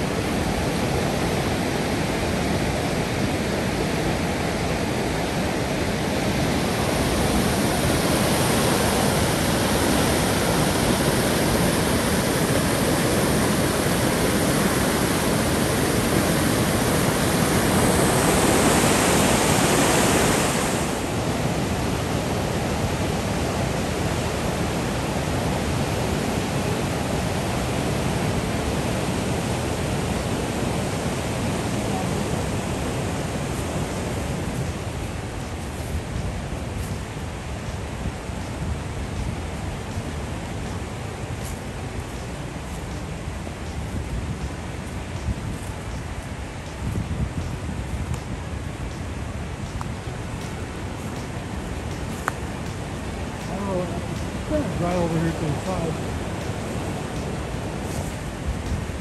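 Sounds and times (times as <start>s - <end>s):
rapids rushing over rocks: 0.0s - 59.0s.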